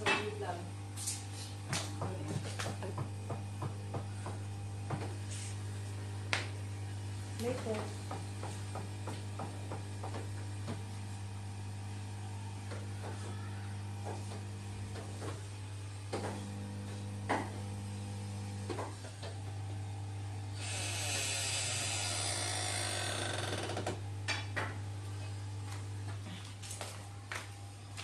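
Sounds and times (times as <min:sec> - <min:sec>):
massage chair motor hum: 0:00.0 - 0:28.0
second motor tone: 0:09.8 - 0:24.4
hiss: 0:20.6 - 0:22.9.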